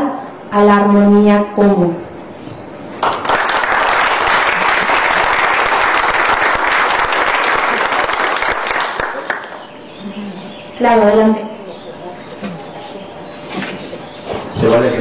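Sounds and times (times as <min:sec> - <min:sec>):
audience applauding: 0:03.0 - 0:09.7.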